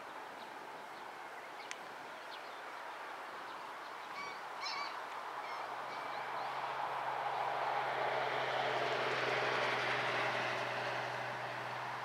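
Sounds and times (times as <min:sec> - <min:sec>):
outdoor background hiss: 0:00.0 - 0:12.0
short bird calls: 0:04.1 - 0:06.2.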